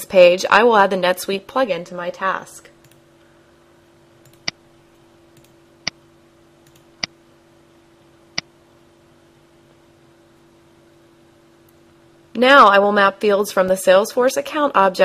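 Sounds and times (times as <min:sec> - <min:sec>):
faint steady hum: 0:00.0 - 0:15.0
computer mouse clicks: 0:02.8 - 0:03.0, 0:04.2 - 0:04.6, 0:05.4 - 0:05.6, 0:06.6 - 0:07.1.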